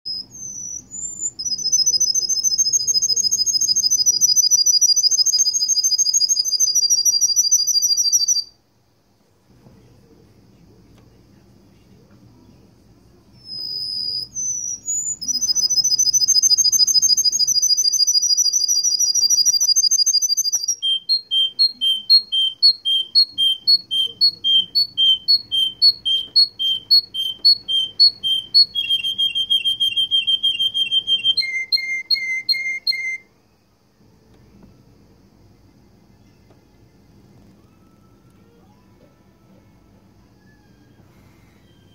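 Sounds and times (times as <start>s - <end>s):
canary singing trills: 0.1s - 8.6s, 13.4s - 33.3s.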